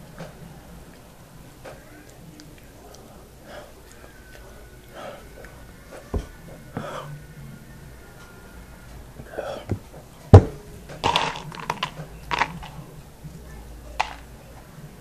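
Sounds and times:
breathy huffs: 2.8s - 7.5s, 9.0s - 10.0s.

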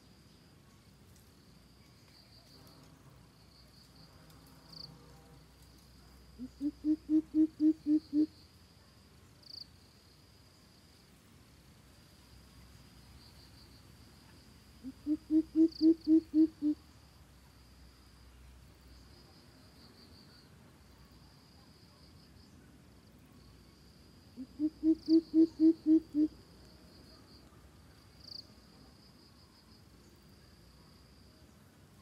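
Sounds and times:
faint high insect trill: 0.0s - 32.0s
bird deep hooting calls: 6.4s - 8.3s, 14.8s - 16.8s, 24.4s - 26.4s.

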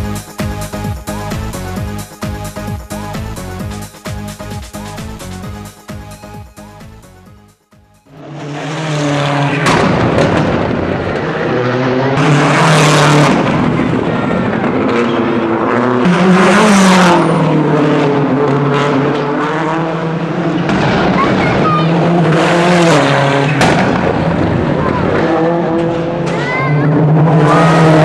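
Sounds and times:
rally cars revving past: 8.1s - 28.0s.

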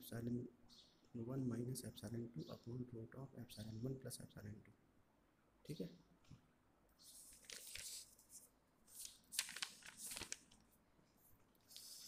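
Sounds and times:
book pages rustling: 7.0s - 12.0s.

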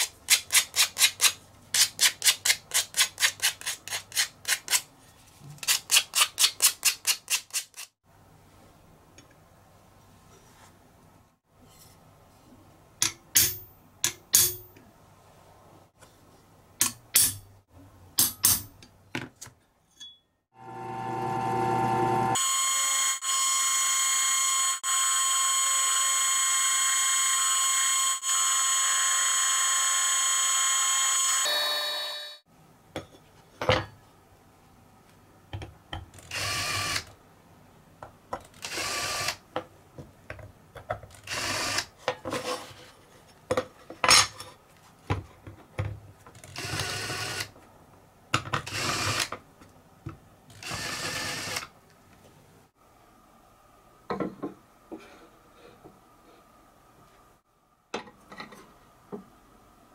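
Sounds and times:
drill press whining: 20.6s - 28.2s.

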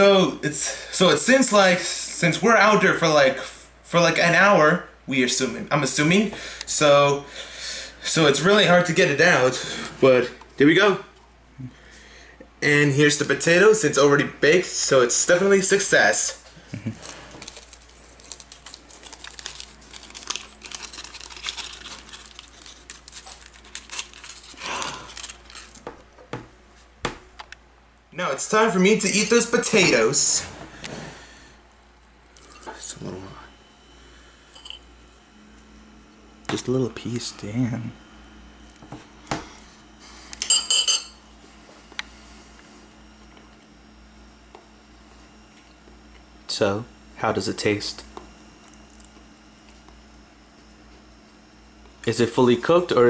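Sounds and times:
aluminium foil crinkling: 16.8s - 25.9s.

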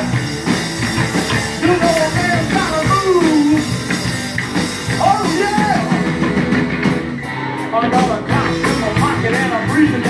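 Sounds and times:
bass guitar: 0.0s - 10.0s
drum kit: 0.0s - 10.0s
electric guitar: 0.0s - 10.0s
man singing: 1.3s - 3.7s, 5.0s - 6.2s, 7.6s - 10.0s.

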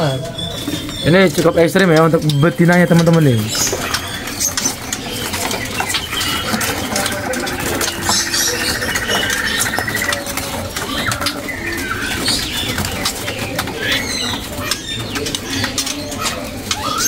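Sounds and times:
songbirds chirping: 0.0s - 17.0s
cage clicks and rattles: 0.7s - 17.0s
rapid bird trill: 2.2s - 15.6s.

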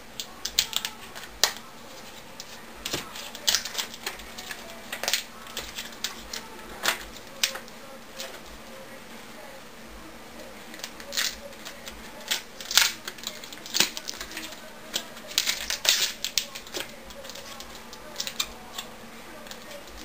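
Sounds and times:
tape and paper crinkling: 0.2s - 8.5s, 10.7s - 20.0s.

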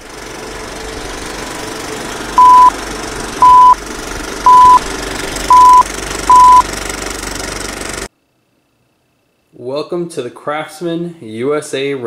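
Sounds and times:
countdown beeps: 2.4s - 2.7s, 3.4s - 3.8s, 4.5s - 4.8s, 5.5s - 6.6s.

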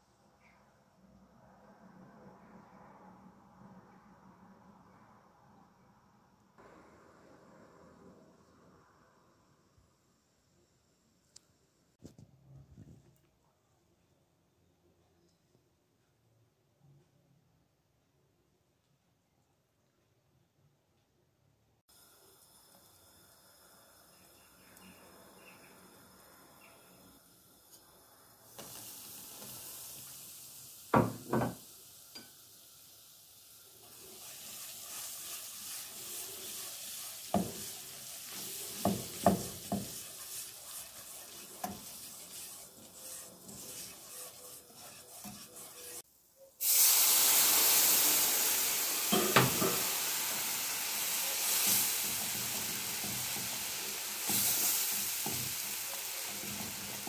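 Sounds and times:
flour sizzling in hot oil: 21.9s - 57.0s
whisk knocking on pan: 30.9s - 31.6s, 36.4s - 46.0s
whisk stirring: 33.9s - 46.0s.

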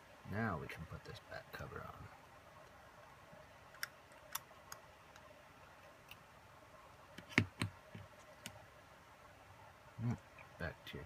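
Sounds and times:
small plastic parts clicking: 3.7s - 6.2s.

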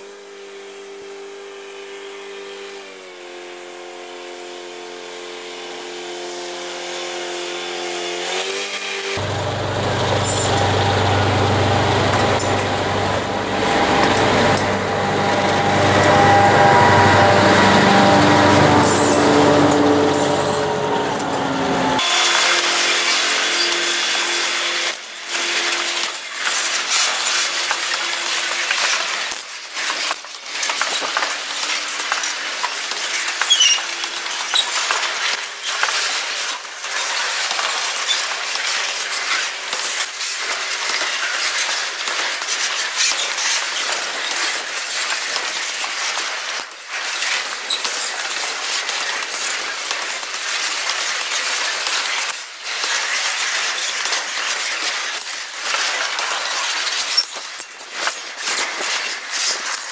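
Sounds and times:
train wheel squeals: 13.6s - 24.5s, 33.4s - 34.8s.

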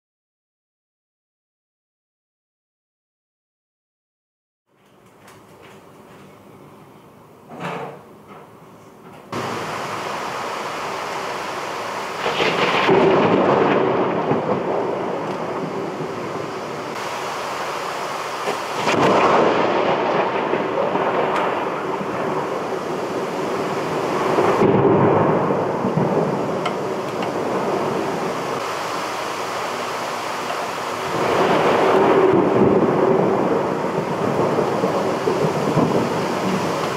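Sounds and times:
heavy rain pouring: 9.3s - 36.9s.

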